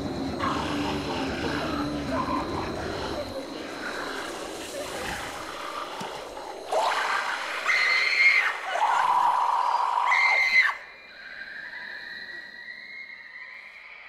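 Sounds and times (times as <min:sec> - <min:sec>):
high-pitched screaming: 0:06.7 - 0:14.0.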